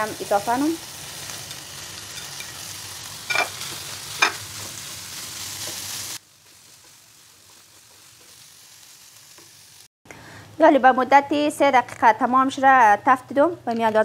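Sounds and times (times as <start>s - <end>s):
food sizzling in a frying pan: 0.0s - 9.9s.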